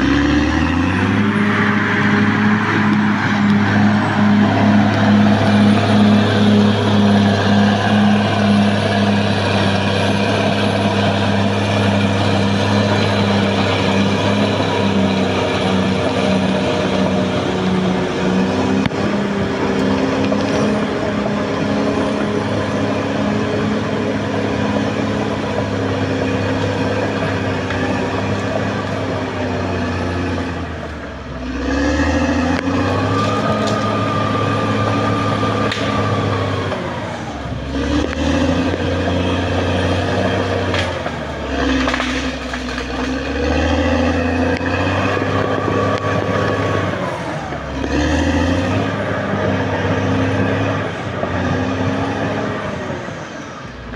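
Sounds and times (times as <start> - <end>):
high whine: 0.0 - 31.2
bulldozer diesel engine running: 0.0 - 53.9.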